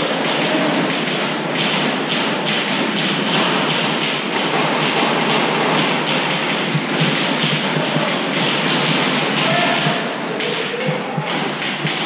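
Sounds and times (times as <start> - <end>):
airsoft gunfire clatter: 0.0 - 12.0
pellets hitting wooden boards: 0.0 - 12.0.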